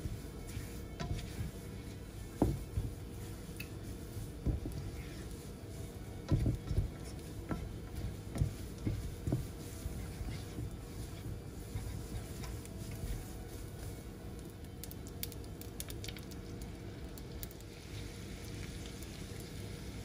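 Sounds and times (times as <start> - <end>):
spatula stirring noodles in wok: 0.0 - 14.5.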